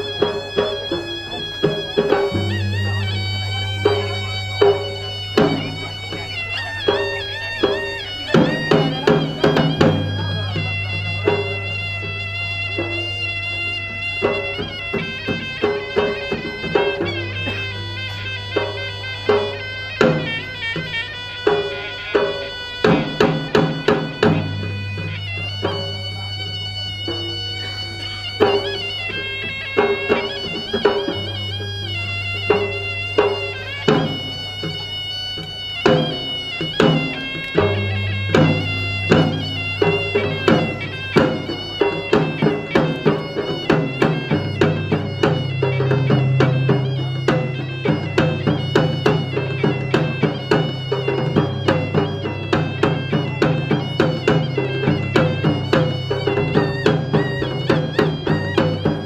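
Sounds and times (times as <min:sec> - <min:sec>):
barrel drums: 0:00.0 - 0:59.0
reedy wind instrument melody: 0:00.0 - 0:59.0
low held drone: 0:02.2 - 0:06.6.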